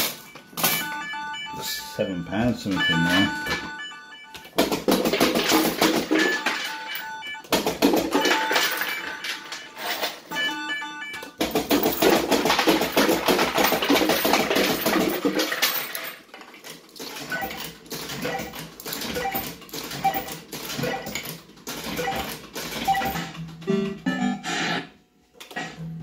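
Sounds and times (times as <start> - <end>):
coins clattering into metal tray: 4.8 - 7.0, 7.7 - 10.3, 11.4 - 23.3.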